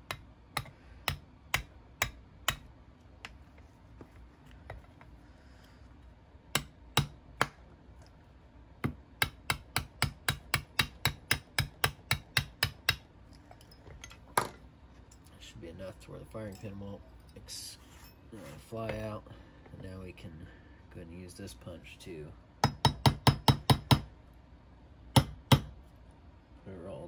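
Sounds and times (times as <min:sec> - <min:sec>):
hammer tapping metal pin: 0:00.0 - 0:03.4.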